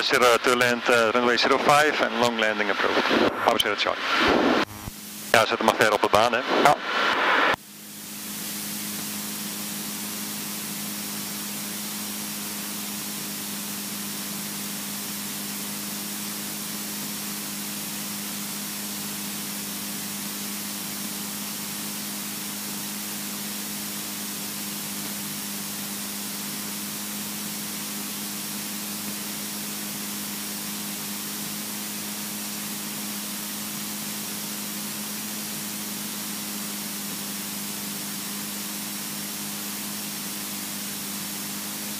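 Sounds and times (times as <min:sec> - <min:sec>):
aircraft engine drone: 0:00.0 - 0:41.9
airflow hiss: 0:06.4 - 0:18.9.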